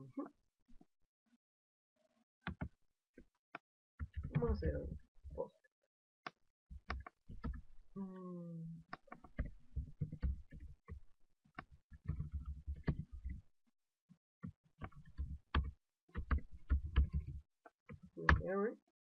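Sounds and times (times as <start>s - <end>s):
typing on computer keyboard: 9.0s - 11.0s, 12.0s - 13.4s, 14.8s - 17.4s.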